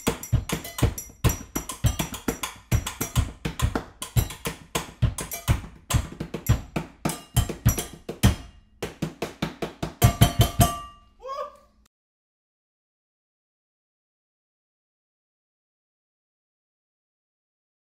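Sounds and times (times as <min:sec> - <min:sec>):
clicks and taps on kitchen objects: 0:00.0 - 0:10.9.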